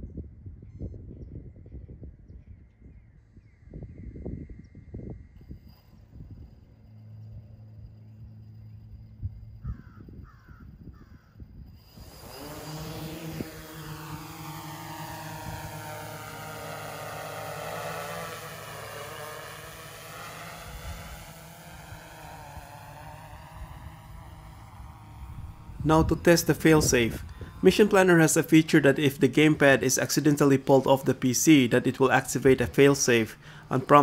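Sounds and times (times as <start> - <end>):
low hum: 5.4 - 10.2, 11.8 - 34.0
drone propeller buzz: 11.8 - 34.0.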